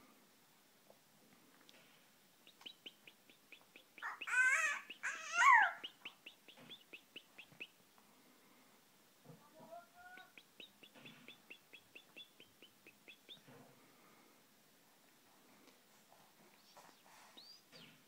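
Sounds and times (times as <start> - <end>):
goldfinch chirping: 2.4 - 7.7, 10.0 - 13.5, 16.6 - 18.0
harsh twittering calls: 2.5 - 7.7.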